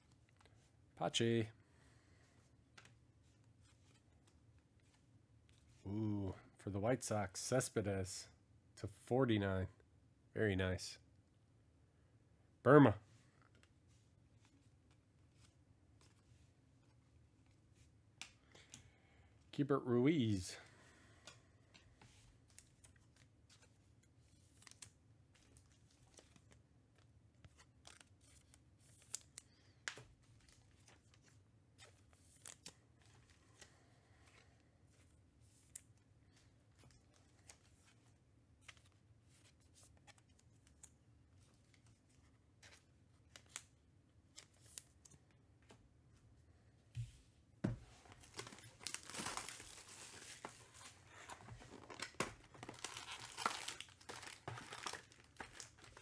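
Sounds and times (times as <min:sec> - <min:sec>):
packaging tearing and crinkling: 0:48.3 - 0:50.4, 0:51.6 - 0:56.0.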